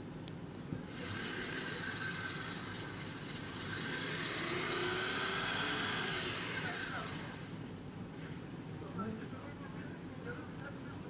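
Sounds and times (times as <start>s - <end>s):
car engine revving: 0.9s - 7.6s
tyres spinning on snow: 1.0s - 7.6s.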